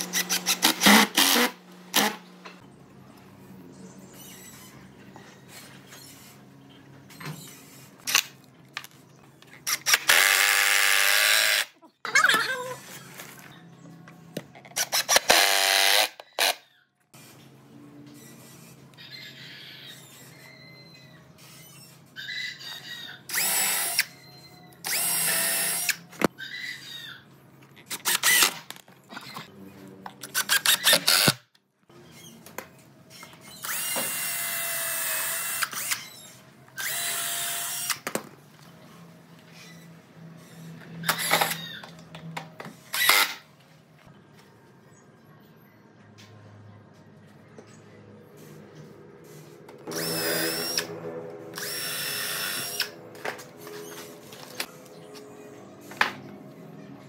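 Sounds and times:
impact driver driving screws: 0:00.0 - 0:02.2, 0:14.8 - 0:16.6, 0:27.9 - 0:28.7, 0:30.2 - 0:31.4, 0:42.9 - 0:43.4.

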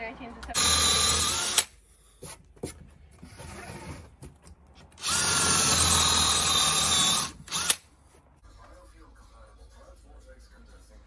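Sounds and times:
cordless drill motor whine: 0:00.6 - 0:01.7, 0:05.0 - 0:07.8.

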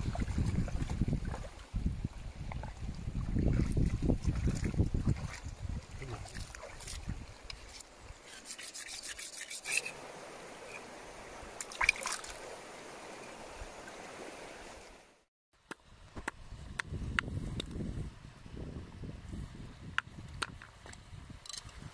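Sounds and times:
stream trickling: 0:00.0 - 0:15.3
blade scraping on stone: 0:07.6 - 0:10.0.

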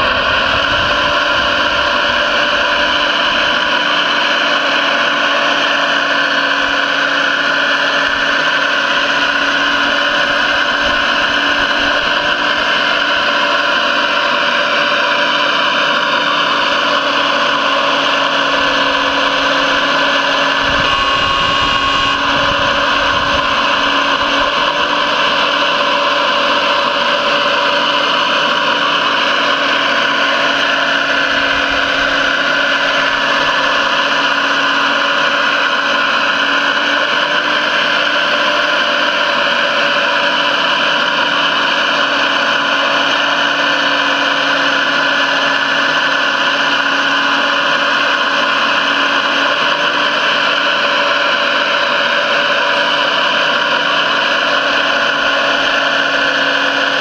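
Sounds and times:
model excavator hydraulic hum: 0:00.0 - 0:57.0.

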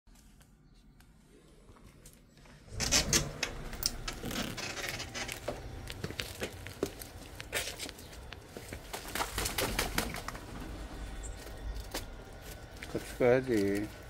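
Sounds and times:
outdoor background: 0:00.1 - 0:14.0
door opening: 0:02.6 - 0:06.1
footsteps and scuffs: 0:05.0 - 0:09.2.

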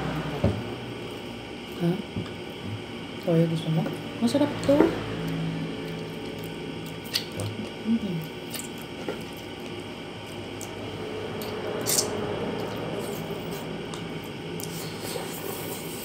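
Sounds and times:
person chewing wetly: 0:05.8 - 0:15.0.

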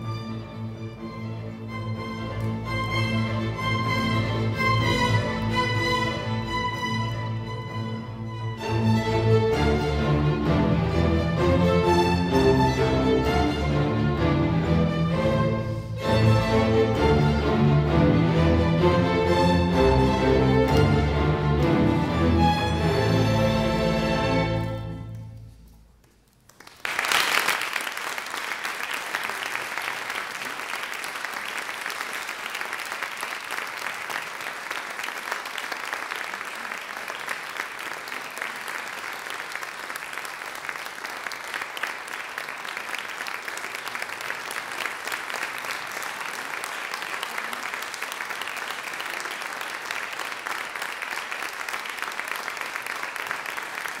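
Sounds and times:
audience applause: 0:26.4 - 0:54.0.

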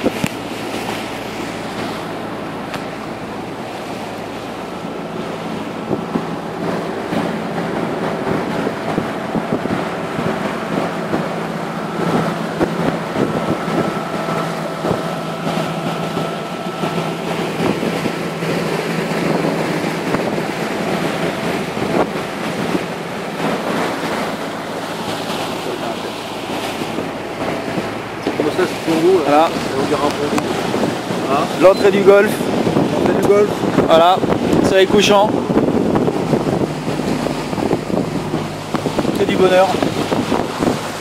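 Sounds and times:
motorboat engine hum: 0:00.0 - 0:41.0
water rushing along hull: 0:00.0 - 0:41.0
wind buffeting microphone: 0:00.0 - 0:41.0.

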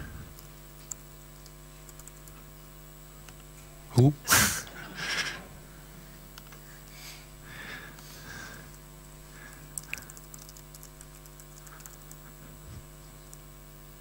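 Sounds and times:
steady electrical hum: 0:00.0 - 0:14.0
laptop keyboard typing: 0:01.8 - 0:02.4, 0:09.5 - 0:12.3.

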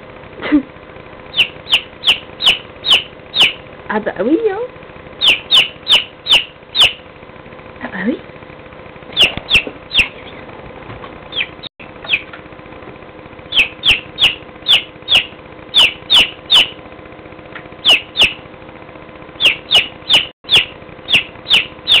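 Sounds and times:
chick peeping: 0:01.3 - 0:03.6, 0:05.2 - 0:07.0, 0:09.2 - 0:10.4, 0:11.3 - 0:12.3, 0:13.5 - 0:16.8, 0:17.8 - 0:18.4, 0:19.4 - 0:22.0.

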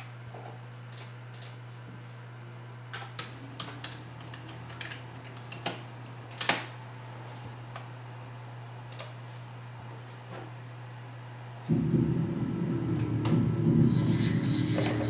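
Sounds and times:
steady low hum: 0:10.6 - 0:15.0.

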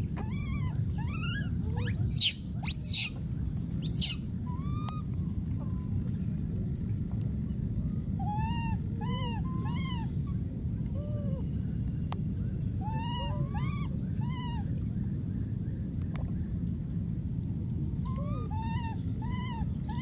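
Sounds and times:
baby monkey high-pitched cries: 0:00.2 - 0:03.2, 0:03.8 - 0:05.1, 0:08.2 - 0:10.2, 0:12.8 - 0:14.7, 0:18.0 - 0:20.0.

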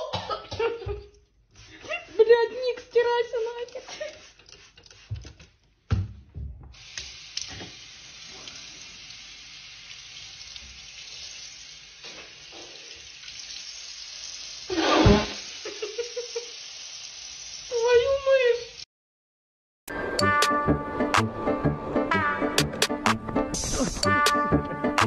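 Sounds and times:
tap water running into sink: 0:06.7 - 0:13.7.

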